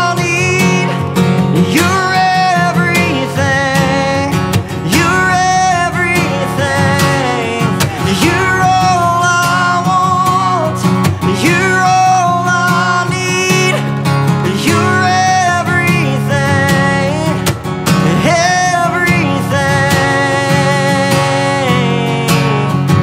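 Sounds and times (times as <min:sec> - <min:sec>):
person singing slow melody: 0:00.0 - 0:23.0
sustained instrumental accompaniment: 0:01.0 - 0:11.5.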